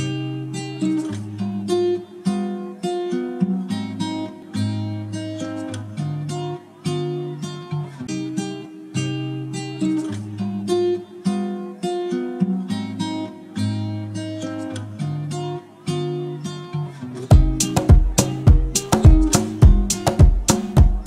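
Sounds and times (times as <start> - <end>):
acoustic guitar melody: 0.0 - 21.0
sharp percussive hits: 17.3 - 21.0.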